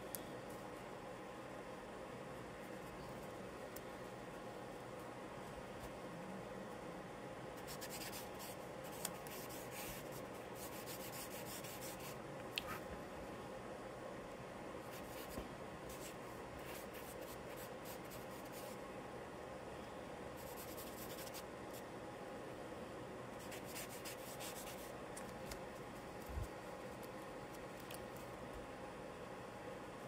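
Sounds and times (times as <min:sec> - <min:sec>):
charcoal scratching on paper: 0:07.6 - 0:12.8, 0:23.4 - 0:24.9.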